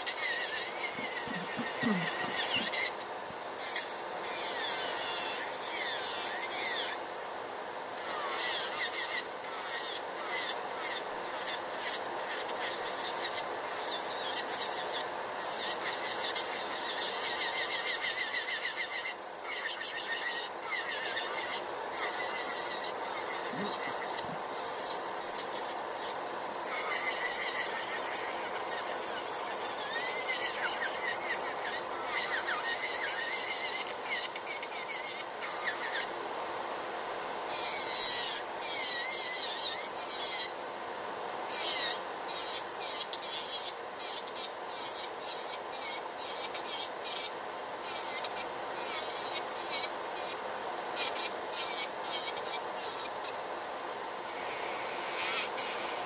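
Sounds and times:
electric nail drill filing nail: 0.0s - 3.0s, 3.6s - 7.0s, 8.0s - 36.1s, 37.5s - 40.5s, 41.5s - 50.4s, 51.0s - 53.2s.

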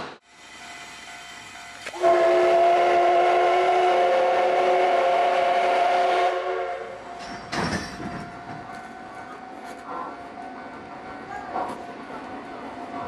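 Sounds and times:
steam locomotive whistle: 1.8s - 7.0s.

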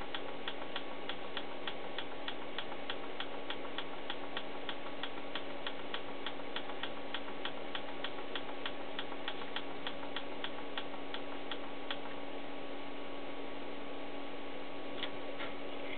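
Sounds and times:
steady hum: 0.0s - 15.9s
oscilloscope clicking: 0.1s - 12.1s.

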